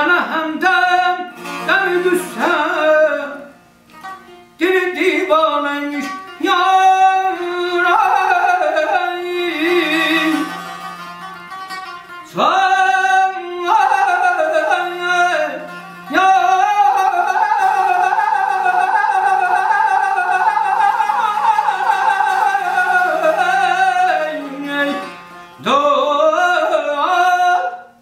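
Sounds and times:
man singing ornamented notes: 0.0 - 11.4, 12.2 - 28.0
plucked lute: 0.0 - 27.9.

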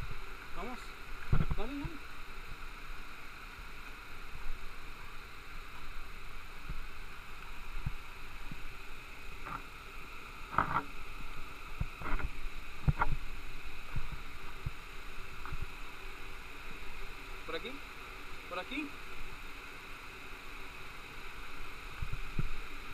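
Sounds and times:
waterfall and stream rushing: 0.0 - 22.9.

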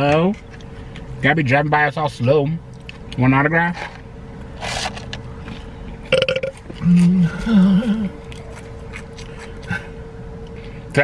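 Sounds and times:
man belching: 6.1 - 8.2.

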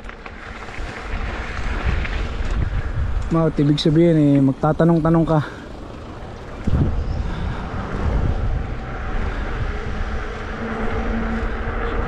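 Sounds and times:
road noise: 0.0 - 12.0
wind buffeting microphone: 0.0 - 12.0
steady humming tone: 4.5 - 12.0.

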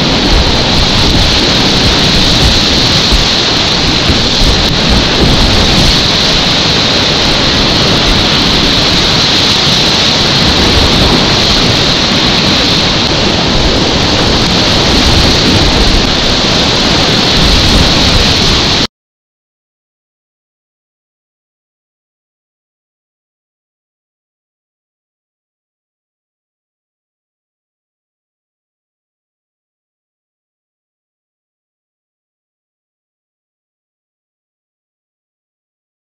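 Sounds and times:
river rapids rushing: 0.0 - 18.9.

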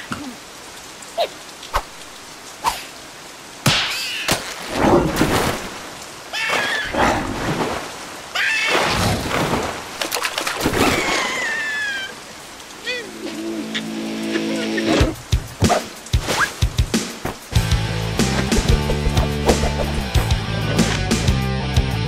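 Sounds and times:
steady rain: 0.0 - 22.0
rushing storm noise: 4.5 - 21.2.

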